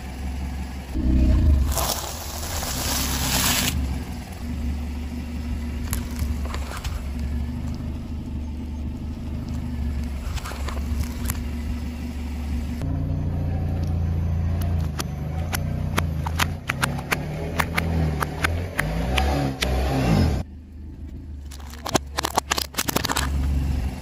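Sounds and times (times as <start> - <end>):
car engine running low: 0.0 - 24.0
rice cakes crunching under tyre: 1.5 - 3.8
tube cracking and squelching: 21.5 - 23.5.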